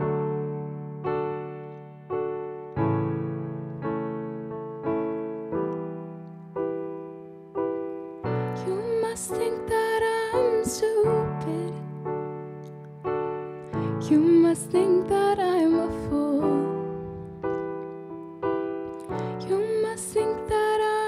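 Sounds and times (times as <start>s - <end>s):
slow piano chords: 0.0s - 21.0s
woman singing: 8.6s - 12.0s, 13.9s - 17.2s, 19.2s - 21.0s.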